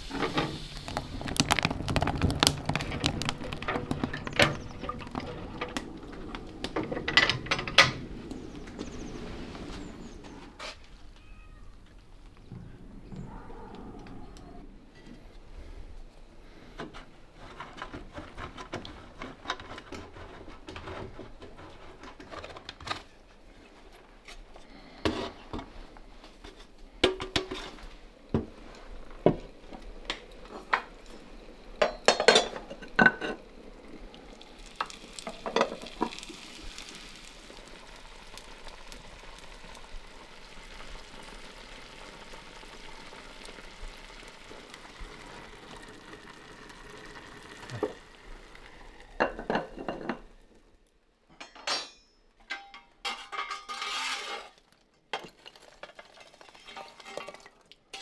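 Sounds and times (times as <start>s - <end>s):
food sizzling: 0.0s - 11.2s, 27.4s - 50.8s, 53.1s - 58.0s.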